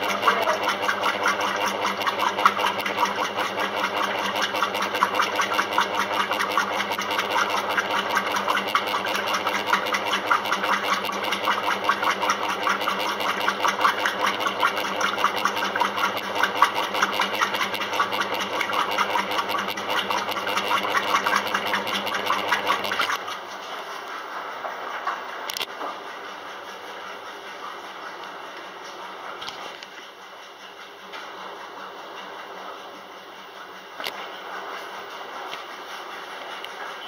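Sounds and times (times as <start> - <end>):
washing machine drone and rattle: 0.0 - 37.0.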